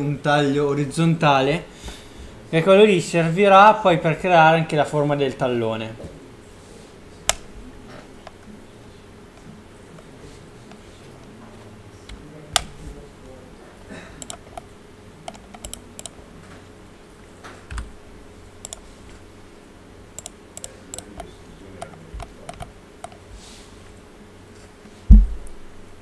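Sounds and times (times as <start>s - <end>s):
faint steady hum: 0.0s - 26.0s
computer keyboard and mouse clicks: 14.2s - 16.2s, 17.7s - 17.9s, 18.6s - 18.8s, 20.2s - 23.2s.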